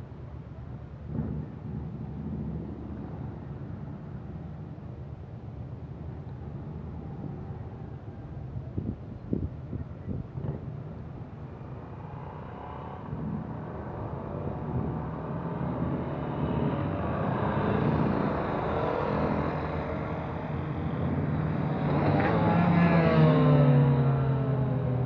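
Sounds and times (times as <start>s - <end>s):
motorcycles riding past: 11.5s - 25.0s.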